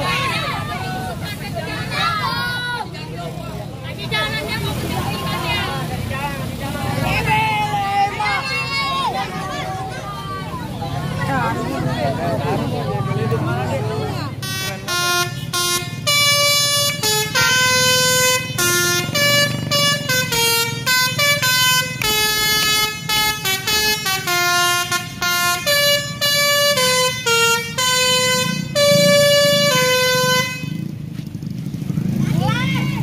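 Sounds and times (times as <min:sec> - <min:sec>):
bus engine rumble: 0:00.0 - 0:33.0
musical air horn playing a tune: 0:14.4 - 0:30.9.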